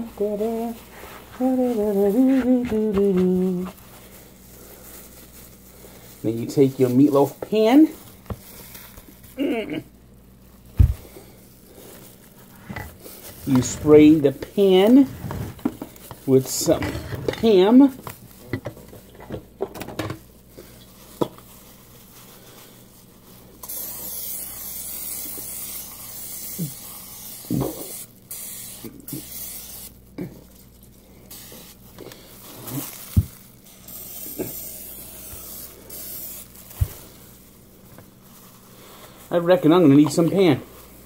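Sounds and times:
aerosol spray hissing: 23.6s - 30.0s, 31.2s - 37.3s.

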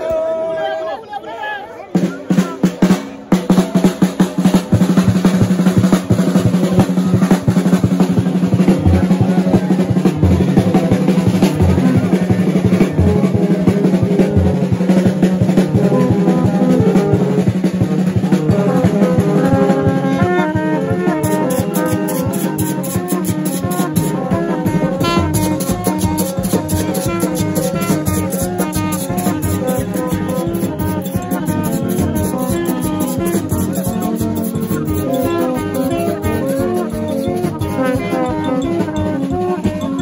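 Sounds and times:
fast dense drumming: 2.0s - 40.0s
tin horns blowing: 15.8s - 40.0s
low drone of tube trumpets: 16.6s - 37.0s
melody of stepped higher notes: 18.5s - 40.0s.

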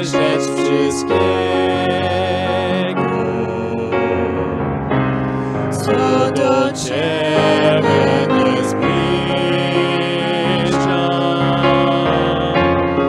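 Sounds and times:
man and woman singing: 0.0s - 4.4s, 5.7s - 12.8s
piano accompaniment: 0.0s - 13.0s.

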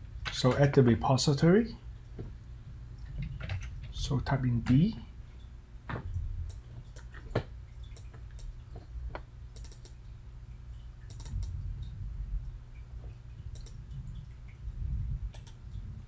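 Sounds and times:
faint low hum: 0.0s - 16.0s
computer mouse clicks: 9.6s - 10.0s, 11.1s - 11.6s, 13.5s - 13.9s, 15.3s - 15.7s.

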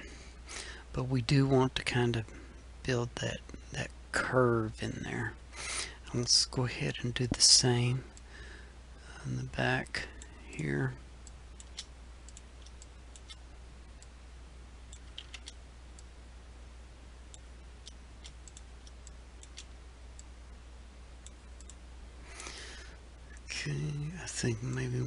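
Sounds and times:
low electrical hum: 0.0s - 25.0s
mouse and keyboard clicks: 11.6s - 13.4s, 14.9s - 15.6s, 17.8s - 19.7s.

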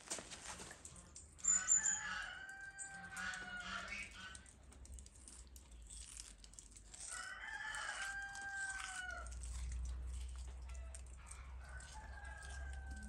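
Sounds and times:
rooster crowing: 1.6s - 3.8s, 7.1s - 9.3s, 10.7s - 13.0s
scissors cutting fish fins: 4.4s - 13.0s.

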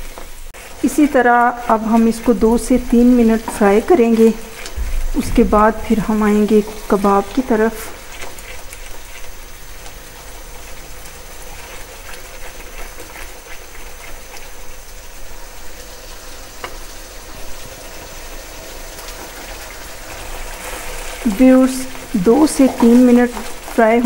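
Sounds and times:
gravy frying and bubbling: 0.0s - 24.0s
spatula stirring: 0.6s - 9.8s, 10.4s - 14.7s.

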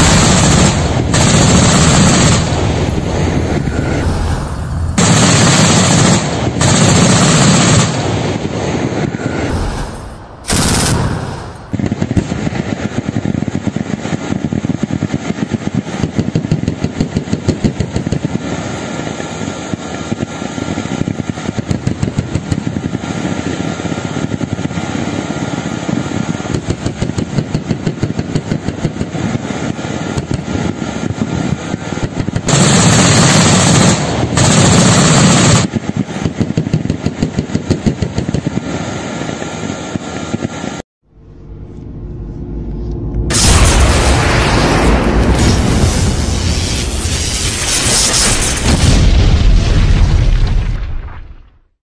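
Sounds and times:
automatic weapons fire: 0.0s - 2.8s, 5.0s - 8.2s, 10.5s - 12.5s, 32.1s - 35.7s.

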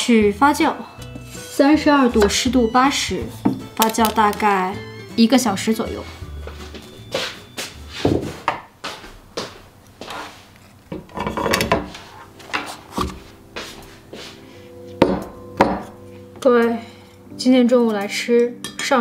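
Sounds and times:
kitchenware knocking on wooden table: 15.0s - 15.9s.

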